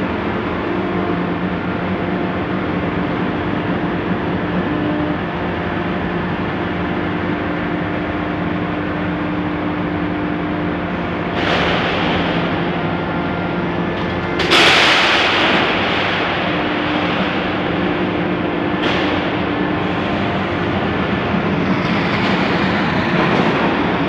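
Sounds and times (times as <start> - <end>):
industrial machine motors droning: 0.0 - 24.0
loud rushing noise: 11.3 - 24.0.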